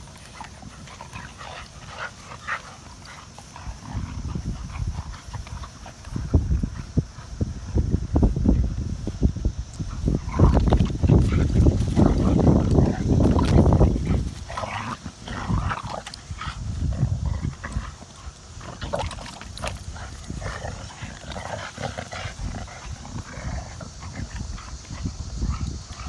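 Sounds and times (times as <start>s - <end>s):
dogs growling and vocalizing: 0.0s - 8.0s, 9.7s - 26.0s
dogs scuffling: 9.9s - 16.4s.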